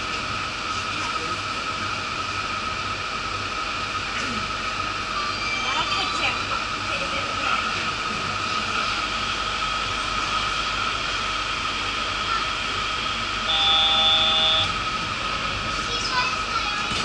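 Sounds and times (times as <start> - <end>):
train car electrical hum: 0.0 - 17.0
short electronic tone: 13.5 - 14.8.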